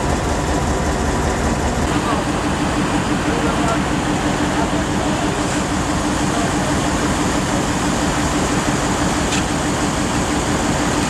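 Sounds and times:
coach engines idling: 0.0 - 11.0.

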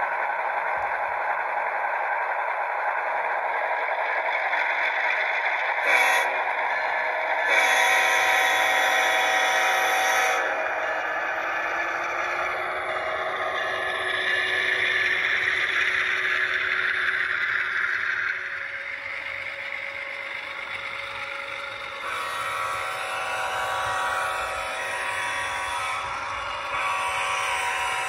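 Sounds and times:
diesel locomotive sound from small speaker: 0.0 - 28.0
model train wheels clattering on track: 0.0 - 28.0.

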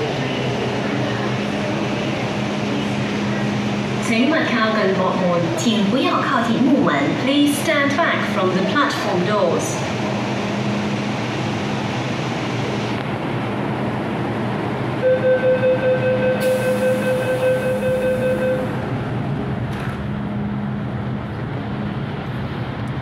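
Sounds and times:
train humming: 0.0 - 23.0
pulsing buzzer beep: 15.0 - 18.7.

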